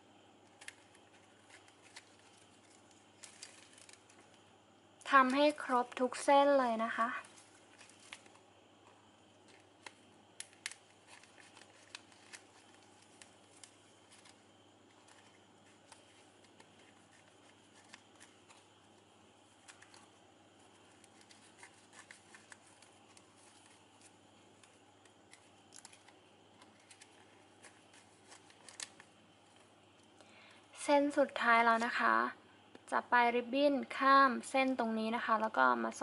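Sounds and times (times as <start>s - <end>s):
ribbon crinkling: 0.5s - 4.4s, 6.8s - 30.1s.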